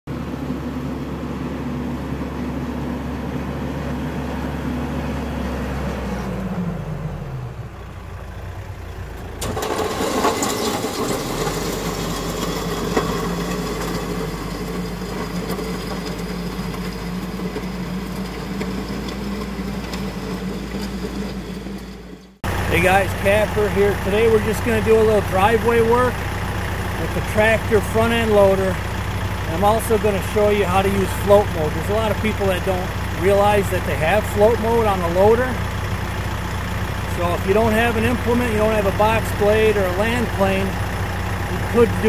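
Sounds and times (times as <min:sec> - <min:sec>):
tractor diesel engine running: 0:00.1 - 0:42.0
tyres moving over gravel: 0:09.4 - 0:42.0.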